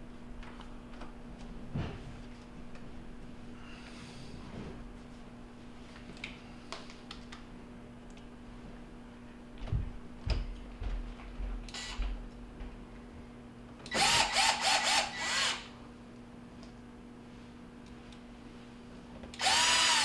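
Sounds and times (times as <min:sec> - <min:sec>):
drill-driver motor whining: 0:13.9 - 0:15.7, 0:19.4 - 0:20.0.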